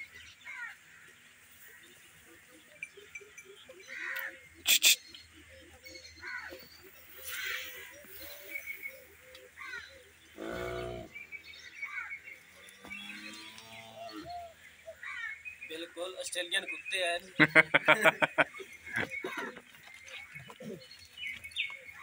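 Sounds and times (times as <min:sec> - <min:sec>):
drawn-out animal cry: 0:09.6 - 0:11.2, 0:12.8 - 0:15.4.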